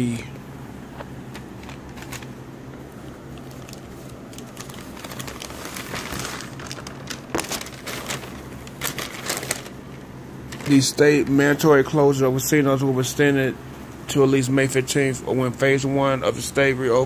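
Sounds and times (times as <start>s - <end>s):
steady low hum: 0.0s - 17.0s
newspaper pages rustling: 1.3s - 11.2s.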